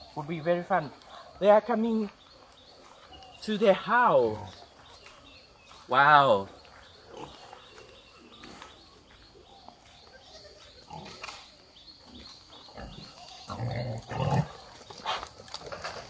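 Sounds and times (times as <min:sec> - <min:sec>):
pigs grunting: 0:07.0 - 0:08.8, 0:10.4 - 0:11.4, 0:12.0 - 0:15.8.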